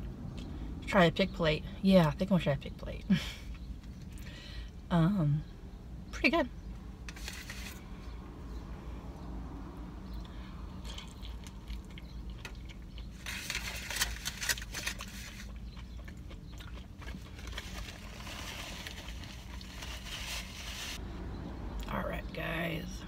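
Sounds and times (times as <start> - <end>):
chewing food: 10.1 - 20.5
crisp crackly noise: 10.8 - 21.0
paper napkin rustling: 17.4 - 21.0.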